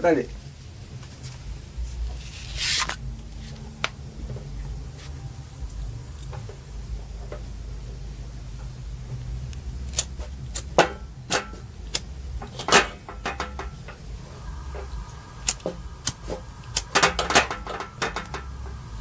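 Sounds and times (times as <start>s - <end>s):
low steady hum: 0.0s - 19.0s
gas stove igniter clicks: 9.5s - 14.0s, 14.8s - 18.7s.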